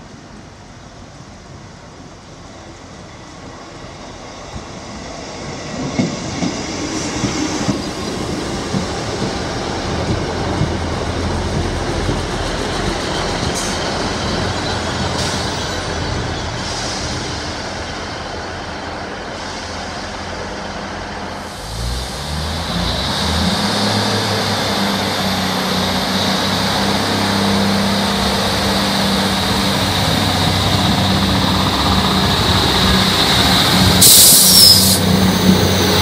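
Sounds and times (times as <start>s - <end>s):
diesel train engine rumble: 0.0s - 36.0s
high wheel squeals: 22.9s - 36.0s.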